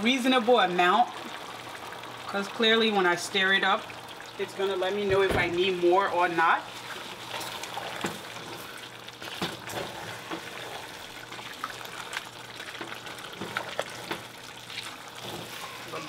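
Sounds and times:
oil sizzling in pot: 0.0 - 16.0.

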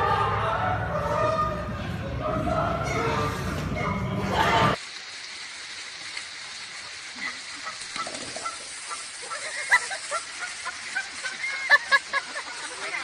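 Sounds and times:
steady hiss: 4.8 - 13.0
goose honking: 7.6 - 9.5.

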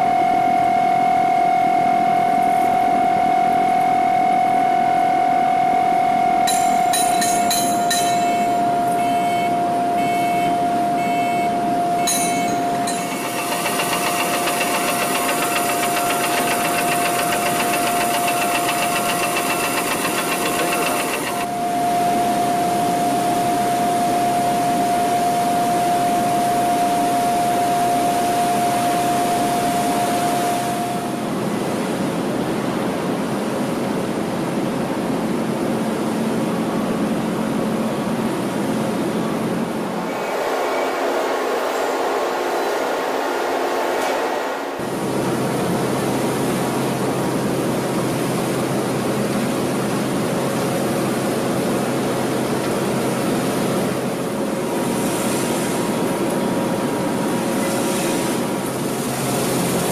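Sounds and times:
continuous whining tone: 0.0 - 31.5
factory machinery noise: 1.7 - 59.9
short beeps: 8.2 - 13.2.

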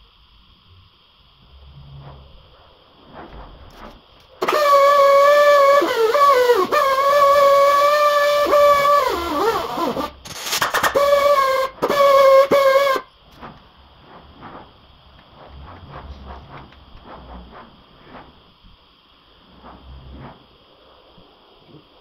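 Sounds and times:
pneumatic die grinder whining: 4.4 - 13.0.

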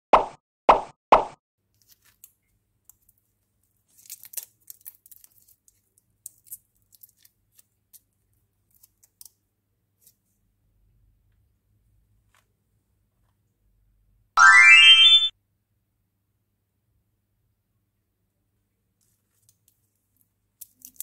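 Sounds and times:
foil wrapper crinkling: 3.8 - 7.7.

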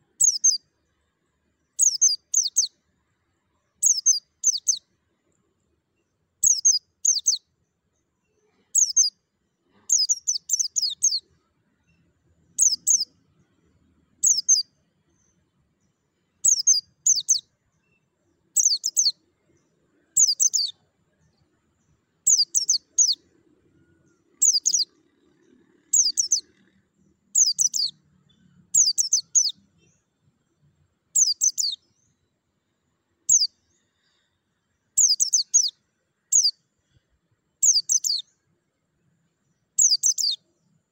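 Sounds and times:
bird high-pitched chirping bursts: 0.1 - 0.6, 1.8 - 2.7, 3.8 - 4.8, 6.4 - 7.4, 8.7 - 9.2, 9.9 - 11.2, 12.6 - 13.1, 14.2 - 14.7, 16.4 - 17.5, 18.6 - 19.2, 20.2 - 20.8, 22.2 - 23.2, 24.4 - 24.9, 25.9 - 26.6, 27.3 - 28.0, 28.7 - 29.6, 31.1 - 31.8, 33.2 - 33.5, 35.0 - 36.6, 37.6 - 38.2, 39.8 - 40.4.

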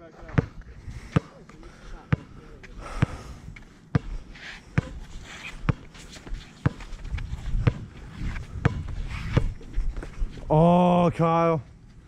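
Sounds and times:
basketball bouncing on court: 0.3 - 0.6, 6.6 - 6.9, 8.6 - 9.5.

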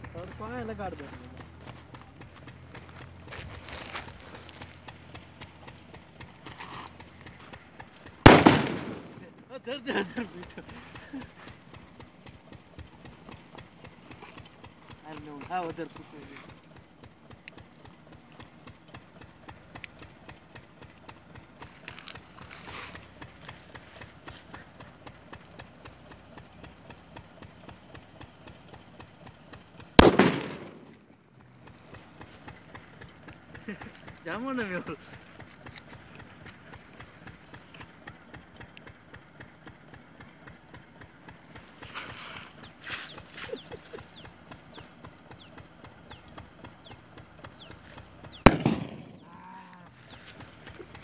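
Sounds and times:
underwater firecracker blast: 8.3 - 9.2, 30.0 - 30.9, 48.5 - 49.1
underwater firecracker bang: 48.5 - 49.1.

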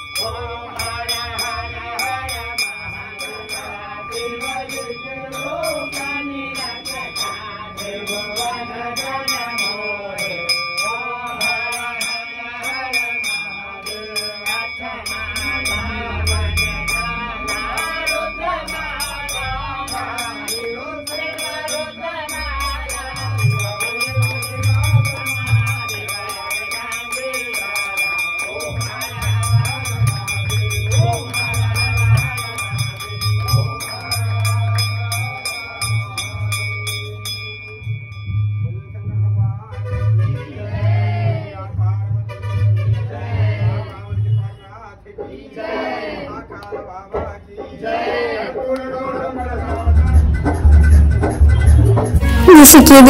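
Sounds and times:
group of voices singing: 0.0 - 37.0, 40.2 - 50.2, 52.1 - 53.0
small cymbals jingling: 0.0 - 39.0
bell ringing: 0.0 - 39.4, 52.2 - 53.0.

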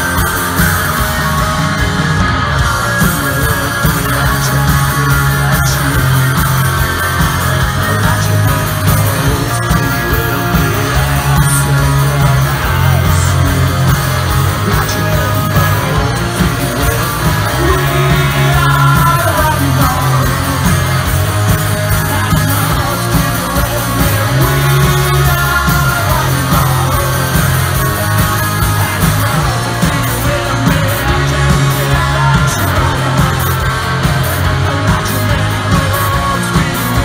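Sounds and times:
bass guitar: 0.0 - 37.0
drums: 0.0 - 37.0
electric guitars: 0.0 - 37.0.

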